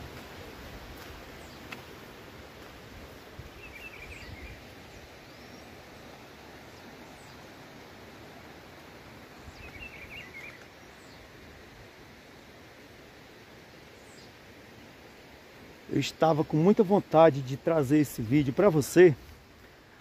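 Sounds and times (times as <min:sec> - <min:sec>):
wind hiss through scrub: 0:00.0 - 0:20.0
bird twittering call: 0:03.6 - 0:05.7, 0:09.5 - 0:11.2.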